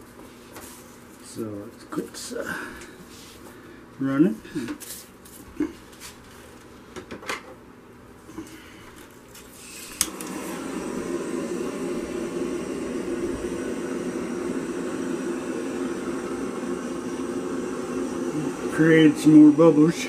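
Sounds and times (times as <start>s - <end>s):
hissing torch flame: 9.4s - 20.0s
torch igniter click: 9.9s - 10.5s.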